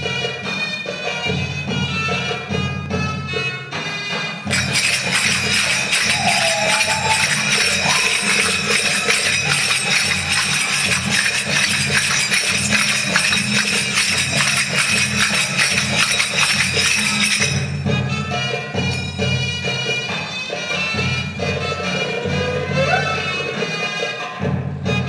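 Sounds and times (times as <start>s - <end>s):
percussion-heavy dance music: 4.5s - 18.0s.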